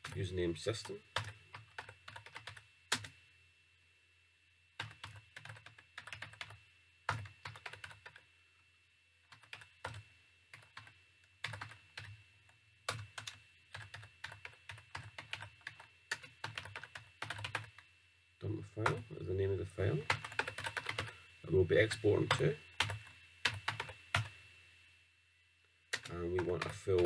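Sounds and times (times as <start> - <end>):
computer keyboard typing: 1.1 - 3.1, 4.8 - 8.2, 9.3 - 12.2, 12.9 - 17.8, 20.0 - 21.1, 22.2 - 24.3, 25.9 - 27.0.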